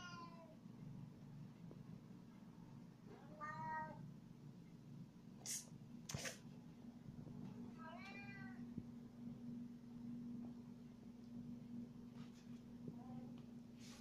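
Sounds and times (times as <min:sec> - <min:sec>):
steady low hum: 0:00.4 - 0:14.0
cat meowing: 0:03.2 - 0:04.0
cat hissing: 0:05.4 - 0:06.5.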